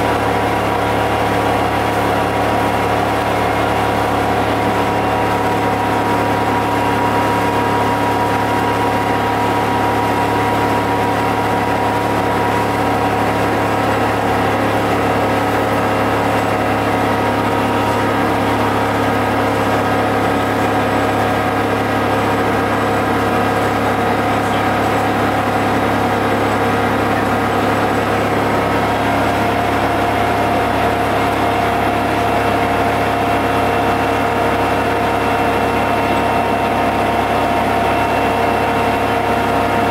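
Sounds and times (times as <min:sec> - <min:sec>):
diesel bus engine droning: 0:00.0 - 0:39.9.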